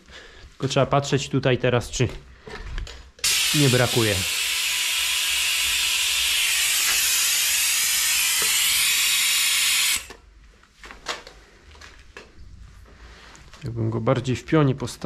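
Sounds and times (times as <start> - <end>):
brake bleeder hissing: 3.2 - 10.2.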